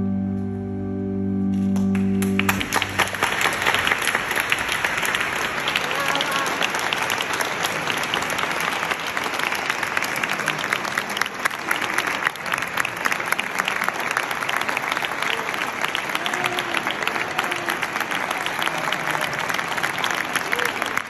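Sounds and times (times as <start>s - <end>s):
large audience clapping: 1.6s - 21.0s
faint voice: 5.7s - 6.9s, 15.1s - 21.0s.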